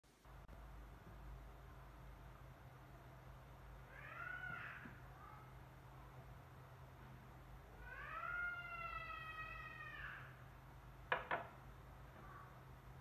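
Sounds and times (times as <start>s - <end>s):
cat meowing: 3.9s - 4.9s.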